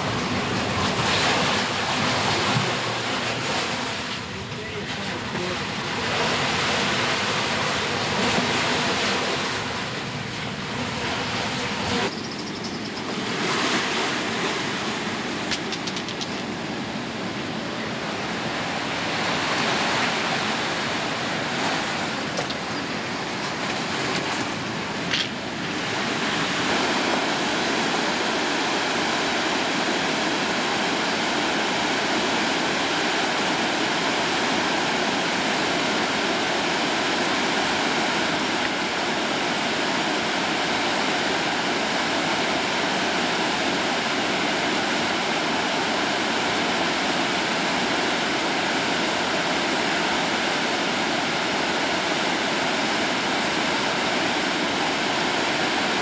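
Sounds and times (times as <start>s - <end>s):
river rapids rushing: 0.0s - 12.1s, 13.0s - 56.0s.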